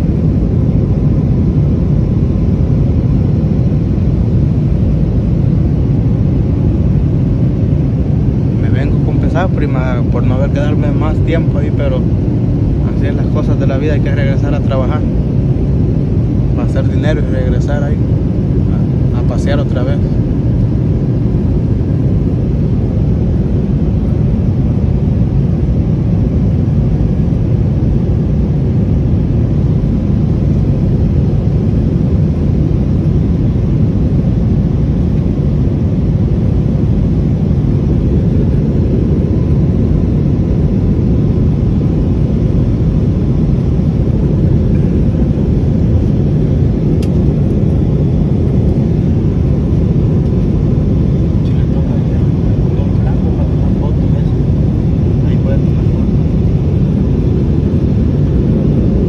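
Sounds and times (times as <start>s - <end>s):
faint steady hum: 0.0s - 59.0s
jet engine cabin rumble: 0.0s - 59.0s.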